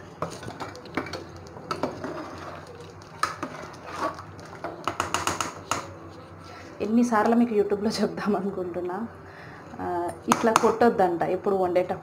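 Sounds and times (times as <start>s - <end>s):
metal ladle stirring in pot: 0.2s - 5.6s.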